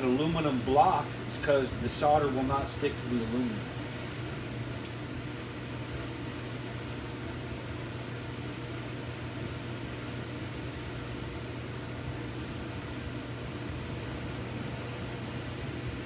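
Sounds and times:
steady low hum: 0:00.0 - 0:16.0
soldering iron sizzling on metal: 0:09.2 - 0:11.0.

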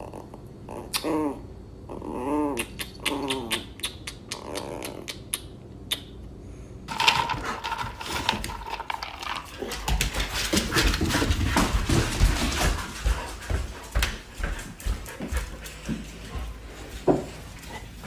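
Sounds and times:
puppy growling: 0:00.0 - 0:05.2.

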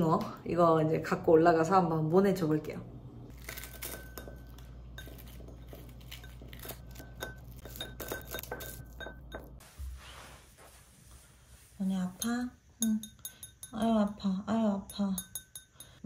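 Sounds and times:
blades clinking on bowl: 0:03.5 - 0:09.6, 0:12.1 - 0:16.0.

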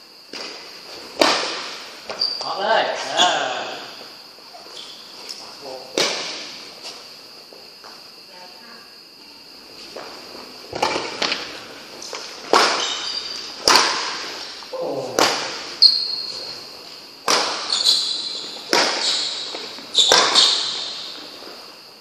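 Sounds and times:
racket hitting shuttlecock: 0:01.2 - 0:01.9, 0:12.0 - 0:16.3, 0:17.2 - 0:21.2
shoes squeaking on court: 0:02.0 - 0:03.6, 0:04.5 - 0:07.6, 0:09.7 - 0:14.6, 0:15.4 - 0:21.7.

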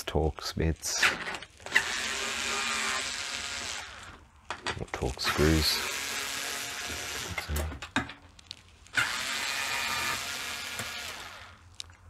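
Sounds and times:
cordless screwdriver whirring: 0:01.6 - 0:04.2, 0:05.3 - 0:07.7, 0:08.9 - 0:11.7.

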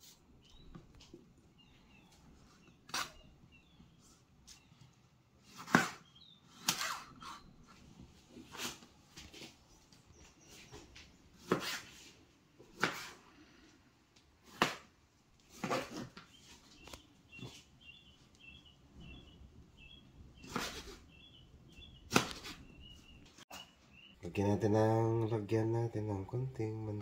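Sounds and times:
knife cutting on plastic board: 0:02.9 - 0:03.2, 0:05.4 - 0:07.5, 0:11.4 - 0:13.2, 0:14.4 - 0:16.3, 0:20.4 - 0:21.0.

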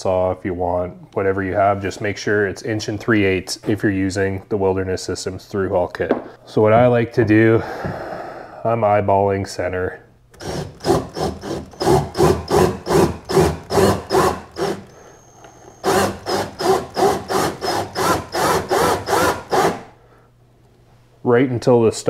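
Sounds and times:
drill bit rasping plastic: 0:10.4 - 0:19.9.

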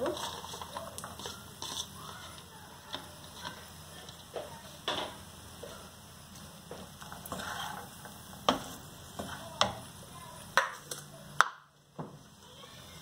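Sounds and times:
spatula scraping rice in pan: 0:00.0 - 0:04.2, 0:06.8 - 0:09.8
spatula knocking on pan: 0:08.4 - 0:09.8.

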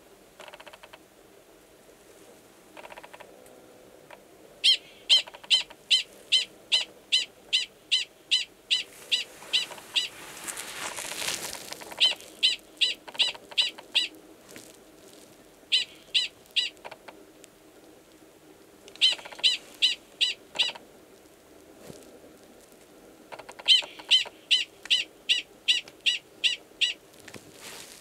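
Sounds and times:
prairie dog barking: 0:11.8 - 0:14.2, 0:15.7 - 0:17.0, 0:19.0 - 0:20.8.

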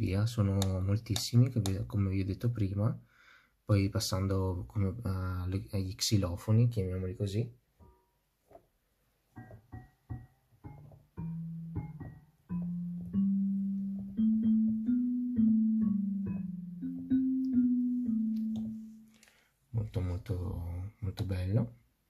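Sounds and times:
xylophone notes on digital piano: 0:09.3 - 0:19.2.

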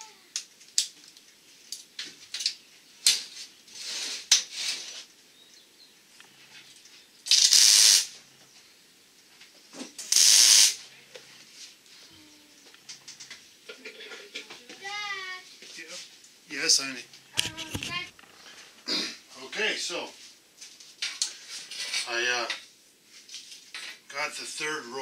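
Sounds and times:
soft hiss: 0:00.2 - 0:25.0
pressurised spray hissing: 0:07.3 - 0:08.2, 0:10.1 - 0:10.8.

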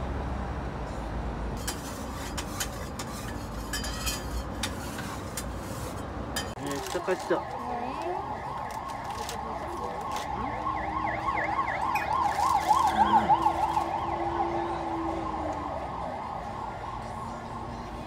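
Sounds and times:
emergency siren wailing: 0:06.6 - 0:18.0.

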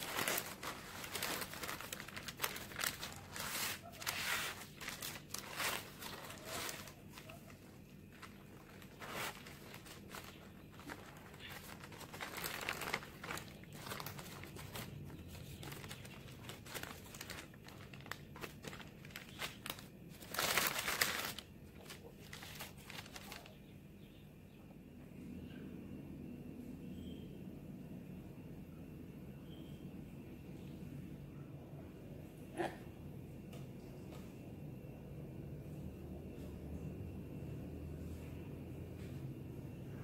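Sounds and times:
baking paper crinkling: 0:00.0 - 0:23.6.

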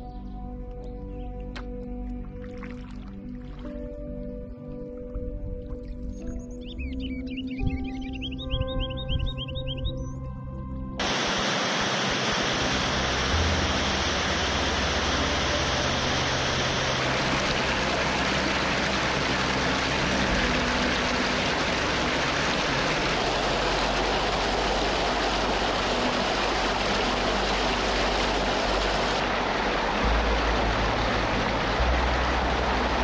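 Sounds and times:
creek water rushing over rocks: 0:11.0 - 0:33.0.

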